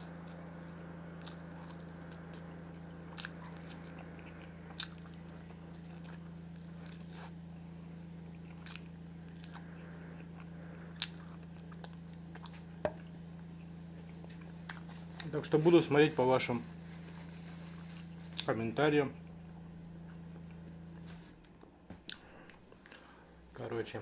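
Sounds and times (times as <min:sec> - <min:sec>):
chewing meat off bone: 0:00.0 - 0:15.3
low hum: 0:00.0 - 0:24.0.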